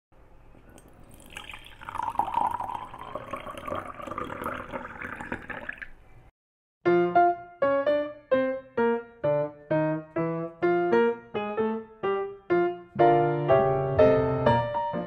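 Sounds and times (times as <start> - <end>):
water pouring into glass jar: 0.7 - 6.0.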